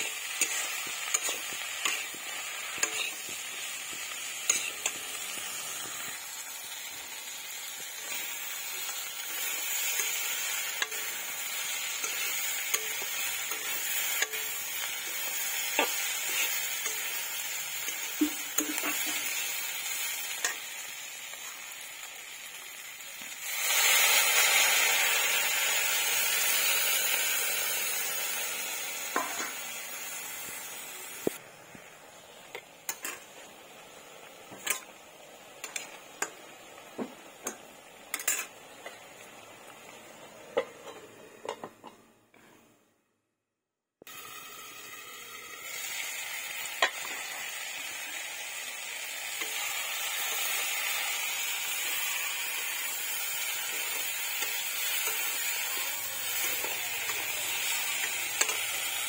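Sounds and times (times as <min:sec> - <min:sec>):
metal spatula scraping pan: 0:00.0 - 0:05.8, 0:38.2 - 0:38.5
vegetables frying in oil: 0:00.0 - 0:41.6, 0:44.1 - 0:59.0
loud sizzle of liquid in pan: 0:00.0 - 0:41.7, 0:44.0 - 0:59.0.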